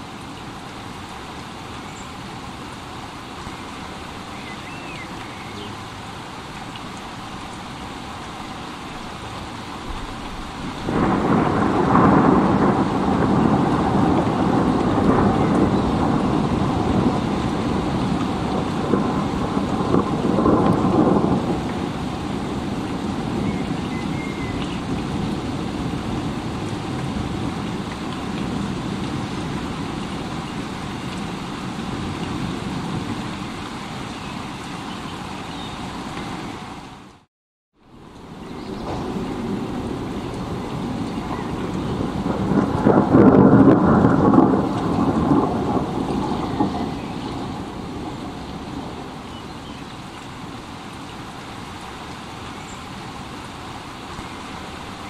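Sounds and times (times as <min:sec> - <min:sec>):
steady rain: 0:00.0 - 0:55.0
thunder rumbling: 0:09.8 - 0:33.4, 0:38.2 - 0:49.3.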